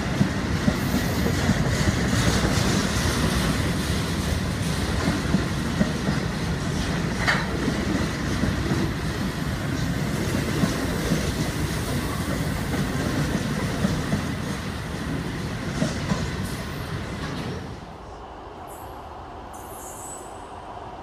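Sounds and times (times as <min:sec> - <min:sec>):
train wheels clattering over rails: 0:00.0 - 0:17.8.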